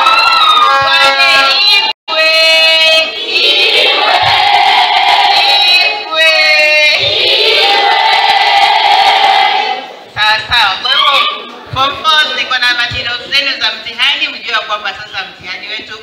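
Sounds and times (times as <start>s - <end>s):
girls singing together: 3.0s - 6.1s, 6.8s - 10.1s.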